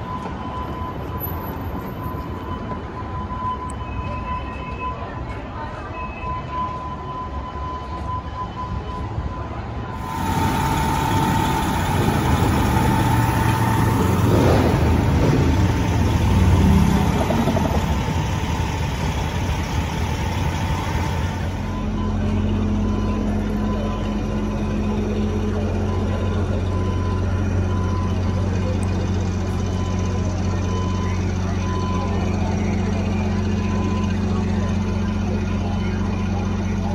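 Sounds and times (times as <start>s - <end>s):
fire engine diesel engines rumbling: 0.0s - 36.9s
thin steady high tone: 9.9s - 14.3s.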